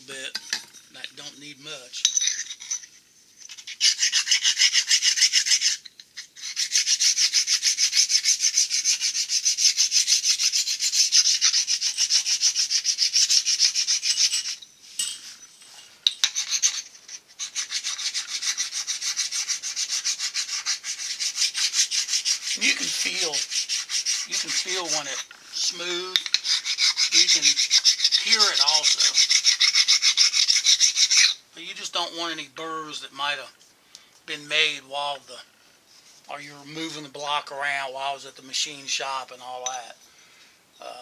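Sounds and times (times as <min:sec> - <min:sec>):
stone scraping on metal: 0:10.1 - 0:31.4.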